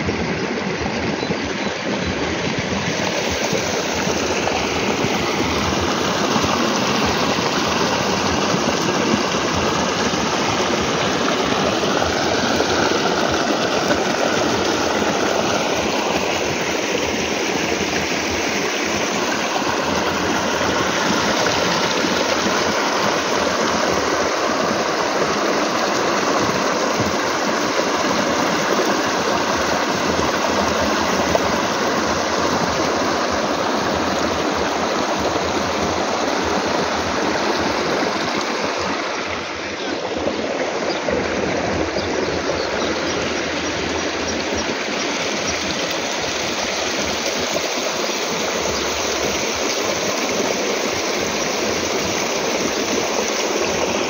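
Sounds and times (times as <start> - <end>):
water gushing from a pipe: 0.0 - 54.0.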